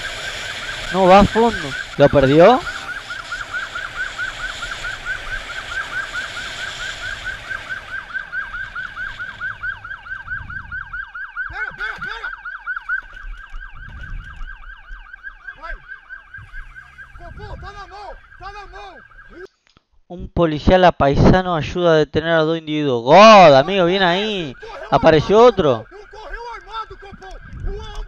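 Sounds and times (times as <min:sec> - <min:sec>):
motorcycle engine: 0:00.0 - 0:10.9, 0:15.2 - 0:19.4
police siren yelping: 0:00.0 - 0:19.5, 0:23.1 - 0:28.0
wind noise: 0:04.1 - 0:15.8, 0:16.4 - 0:18.8, 0:23.5 - 0:28.0.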